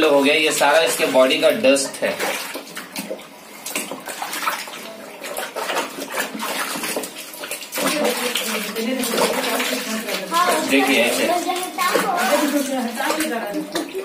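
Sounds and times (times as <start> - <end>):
water splashing in a tub: 0.0 - 14.0.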